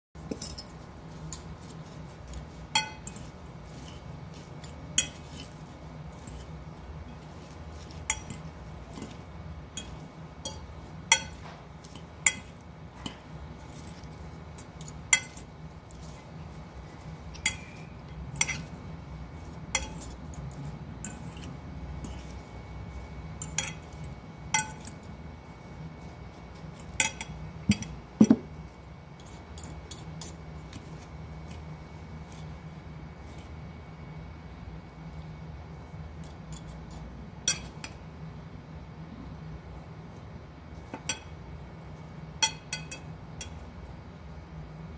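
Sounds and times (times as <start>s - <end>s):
forks clinking against glass bowl: 0.2s - 9.2s, 9.8s - 16.2s, 17.2s - 18.8s, 19.4s - 22.4s, 23.4s - 25.1s, 26.8s - 28.4s, 37.5s - 38.0s, 42.4s - 43.6s.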